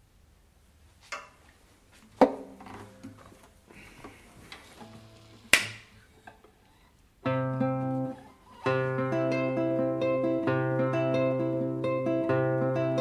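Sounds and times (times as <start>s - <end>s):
acoustic guitar strummed chords: 4.8s - 5.6s, 7.2s - 13.0s.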